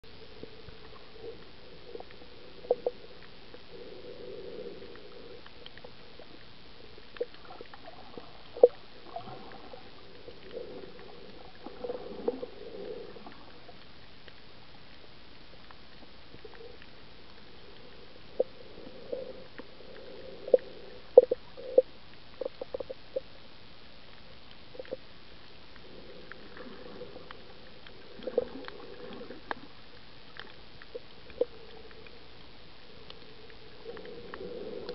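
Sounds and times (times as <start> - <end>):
underwater hiss: 7.4 - 13.8, 25.8 - 30.0.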